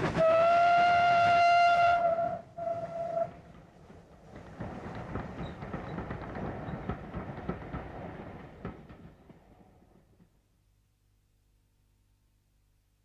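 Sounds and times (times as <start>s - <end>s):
low rumble of train: 0.0s - 10.6s
train wheels clattering over rail joints: 2.6s - 10.3s.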